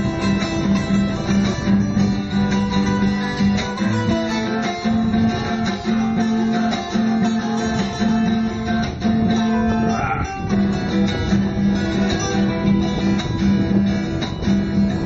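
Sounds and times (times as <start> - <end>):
guitar plucked and strummed: 0.0 - 15.0.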